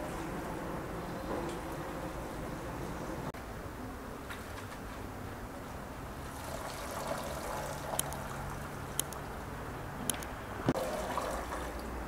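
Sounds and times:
water trickling and splashing: 6.2 - 9.5, 10.7 - 12.0.

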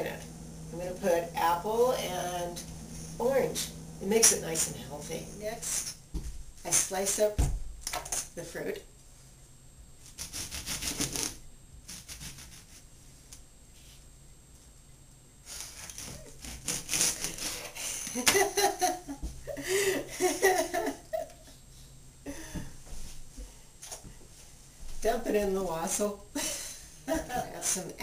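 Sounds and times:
knife sawing through fruit: 10.1 - 12.8, 15.5 - 18.1
woman laughing: 17.8 - 21.6, 26.4 - 27.8.

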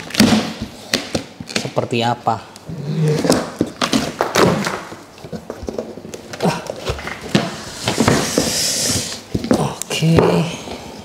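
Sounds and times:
cardboard scraping and rustling: 3.0 - 9.4.

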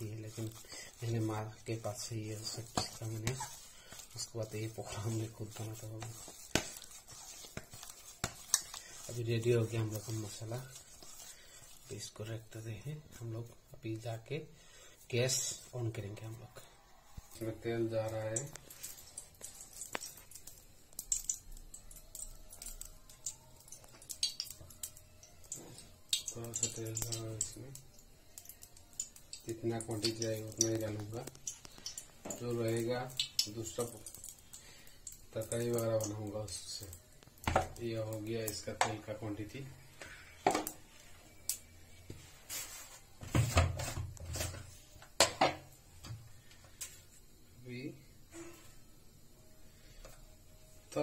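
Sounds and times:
kitchen things knocking and clunking: 37.4 - 37.8, 40.4 - 40.8, 45.2 - 45.7.

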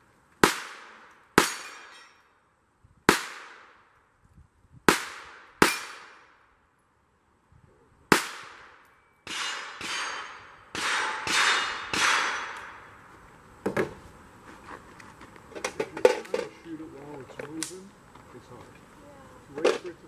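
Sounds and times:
handgun shots with ringing steel: 0.4 - 2.2, 4.9 - 6.2, 8.1 - 12.8.

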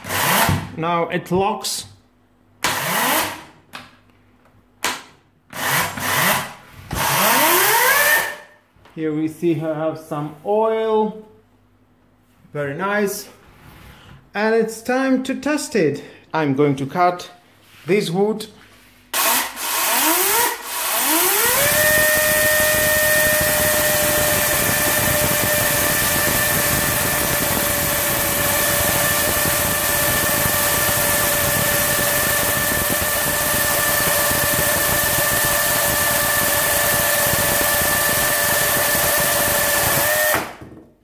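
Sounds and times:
electric chainsaw whining: 2.7 - 3.4, 5.6 - 8.4, 19.2 - 40.6.

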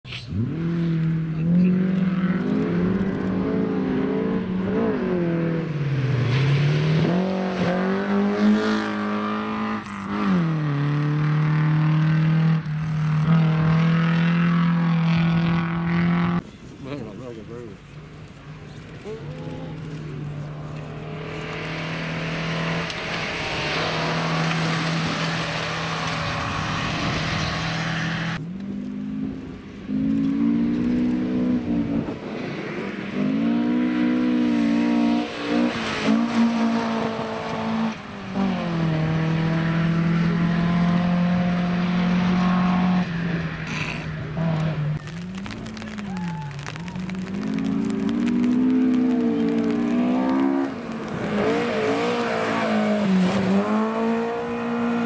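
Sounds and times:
rally car engine at high revs: 0.2 - 16.4, 19.4 - 46.0, 46.6 - 55.0
gravel spraying from tyres: 16.4 - 28.4, 32.2 - 39.6, 43.3 - 55.0.

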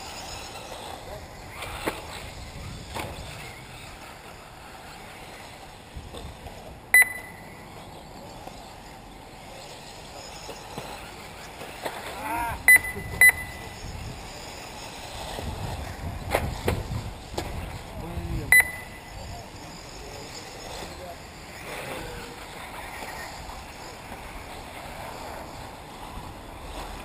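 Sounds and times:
steady background hum: 0.0 - 27.0
short electronic beeps: 6.9 - 7.6, 12.7 - 13.8, 18.5 - 19.2.

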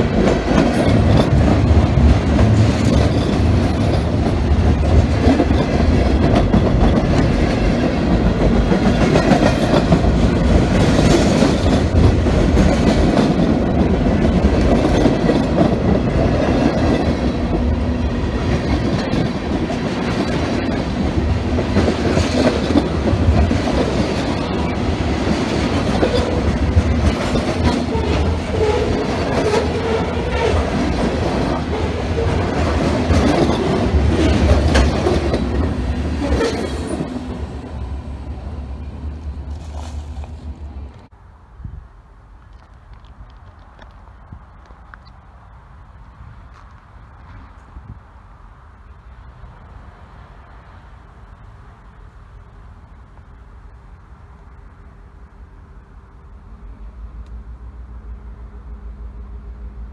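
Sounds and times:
steel train wheels on rails: 0.0 - 41.2.

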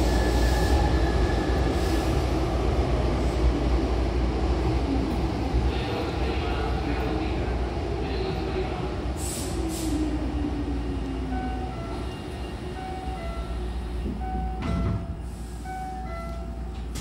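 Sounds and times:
train doors thumping shut: 14.0 - 15.2, 16.7 - 17.0.

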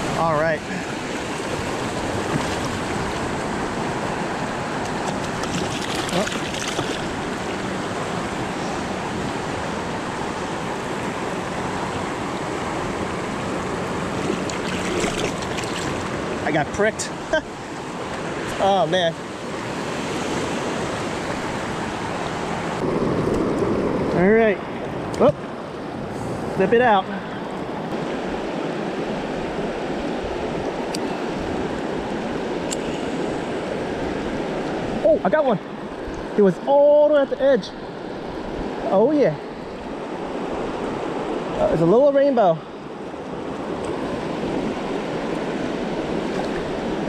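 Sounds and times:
river rushing over rocks: 0.0 - 23.3
stream rushing over rocks: 0.0 - 47.0.

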